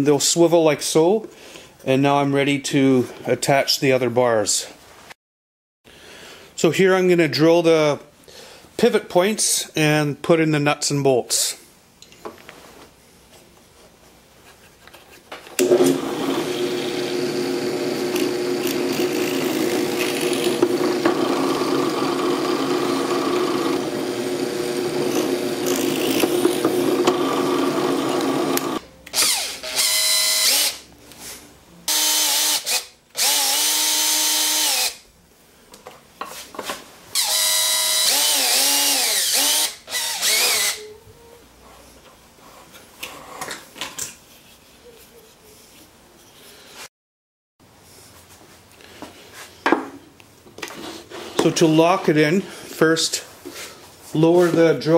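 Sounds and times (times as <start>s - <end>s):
cordless drill whirring: 15.6s - 30.8s, 31.9s - 35.0s, 37.2s - 40.8s
drill press boring wood: 15.6s - 30.8s, 31.9s - 35.0s, 37.2s - 40.8s.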